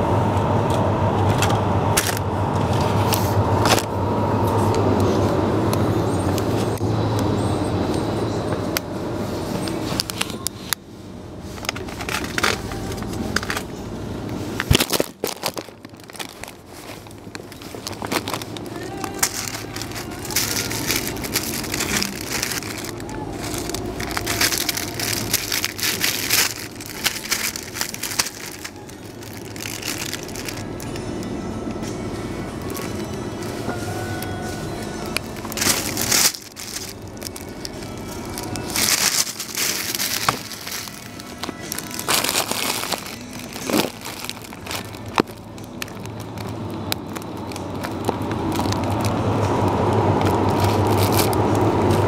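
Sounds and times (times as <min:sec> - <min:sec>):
rushing noise with low hum: 0:00.0 - 0:52.0
plastic bag crinkling: 0:14.5 - 0:31.2, 0:32.6 - 0:52.0.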